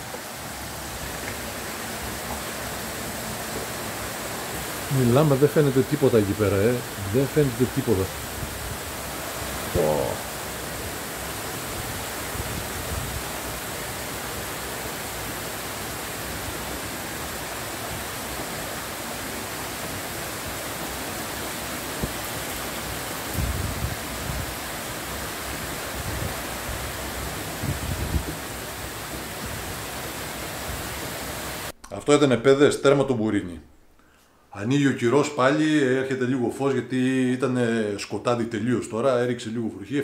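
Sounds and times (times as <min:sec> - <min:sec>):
heavy rain hissing: 0:00.0 - 0:31.8.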